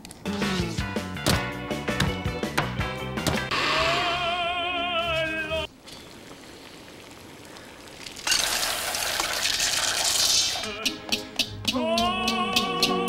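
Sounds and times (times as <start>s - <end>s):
flour pouring hiss: 5.8s - 10.7s.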